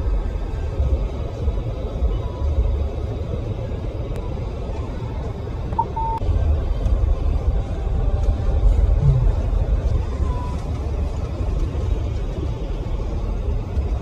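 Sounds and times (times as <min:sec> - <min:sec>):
short high beep: 0:05.8 - 0:06.2.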